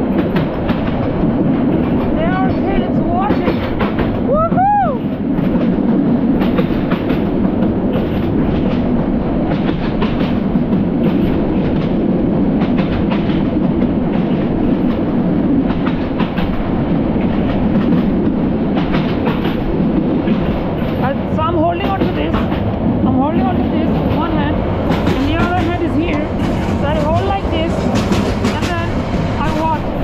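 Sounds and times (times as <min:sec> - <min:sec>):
rail joint clatter and knocks: 0:00.0 - 0:04.3, 0:05.0 - 0:30.0
train wheels rumbling on rails: 0:00.0 - 0:30.0.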